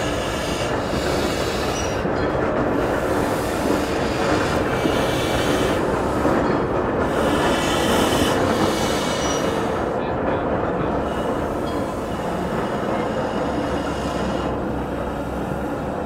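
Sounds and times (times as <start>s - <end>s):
wheel squeals: 0.0s - 9.9s
train wheels rumbling on rail: 0.0s - 16.0s.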